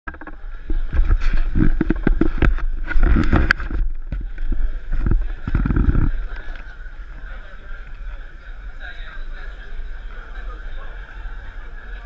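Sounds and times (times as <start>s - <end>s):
wind rumble on microphone: 0.1s - 8.2s.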